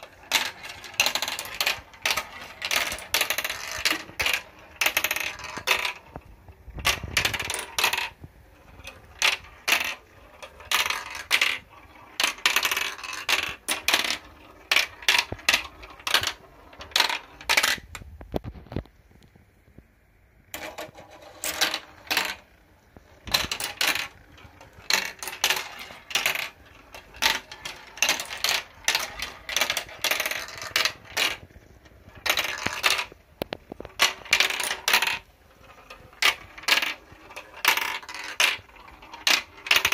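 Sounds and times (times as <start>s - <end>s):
balls clattering down marble run: 0.0s - 18.8s, 20.5s - 39.9s.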